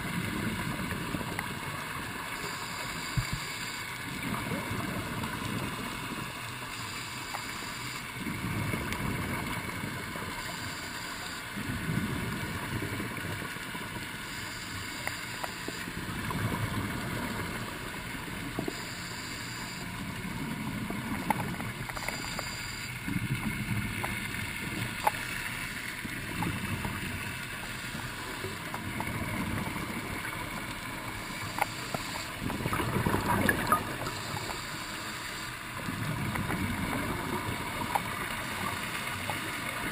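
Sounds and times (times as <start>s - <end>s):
exhaled bubbles underwater: 0.0s - 7.5s, 8.1s - 10.8s, 11.5s - 39.9s
regulator inhalation hiss: 18.7s - 19.9s, 34.1s - 35.6s.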